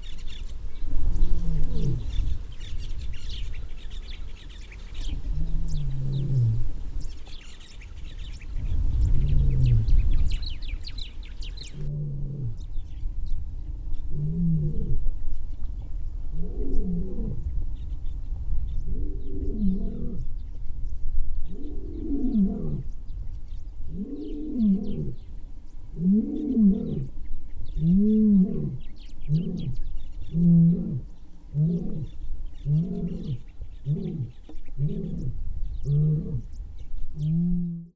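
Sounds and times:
lion grunting: 1.2s - 2.2s, 5.1s - 6.7s, 9.1s - 10.0s, 11.7s - 12.7s, 16.4s - 17.4s, 18.9s - 20.3s, 21.5s - 22.9s, 23.9s - 25.2s, 26.0s - 27.1s, 27.8s - 36.5s
lion roaring: 1.2s - 2.2s, 5.2s - 6.7s, 9.1s - 10.0s, 11.7s - 12.7s, 14.1s - 15.0s, 16.4s - 17.4s, 18.9s - 20.3s, 21.5s - 22.9s, 23.9s - 25.2s, 26.0s - 27.1s, 27.8s - 36.5s.

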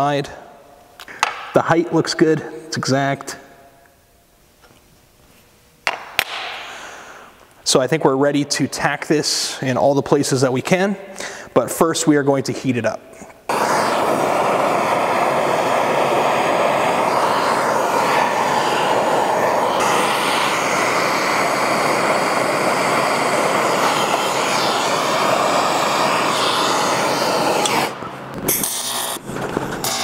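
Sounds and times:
gas torch hissing: 13.4s - 30.0s.

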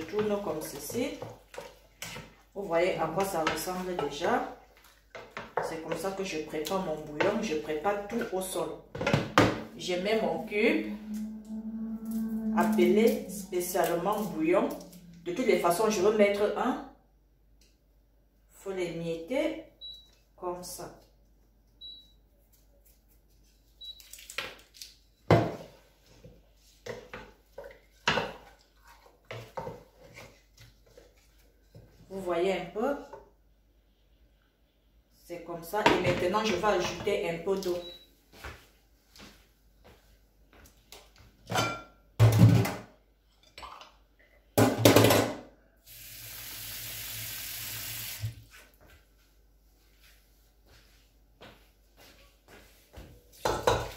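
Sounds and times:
water running from a tap: 45.9s - 48.4s.

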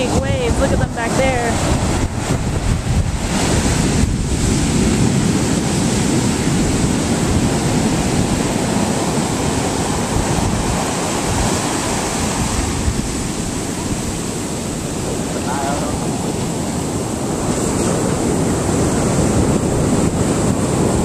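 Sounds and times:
ocean waves breaking: 0.0s - 21.0s
wind on microphone: 0.0s - 21.0s.

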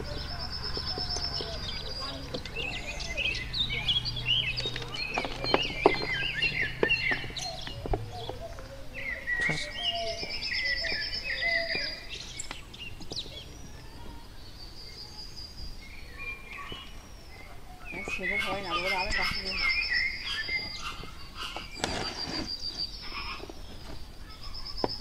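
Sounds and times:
bird trill: 0.0s - 25.0s
birds chirping and calling: 0.0s - 25.0s
hands pressing gritty soil: 21.5s - 24.0s.

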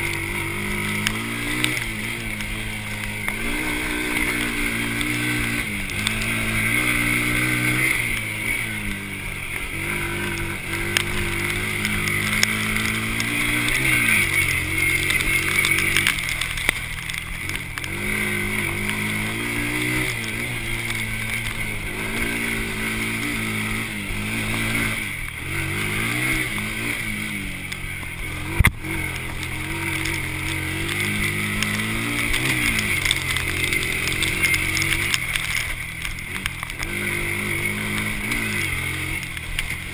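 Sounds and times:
quad engine revving: 0.0s - 39.9s.

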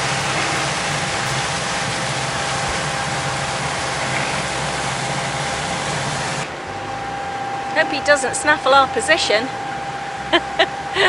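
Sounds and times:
even hiss: 0.0s - 5.3s
boat diesel engine running: 0.0s - 6.5s.

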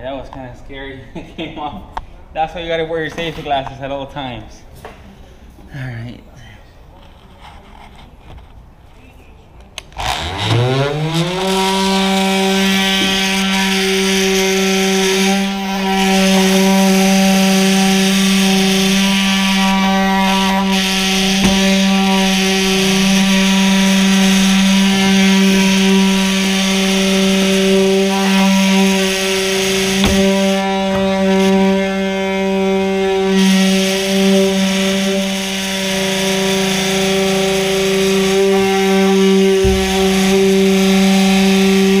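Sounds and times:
oscillating tool buzzing: 10.0s - 42.0s.

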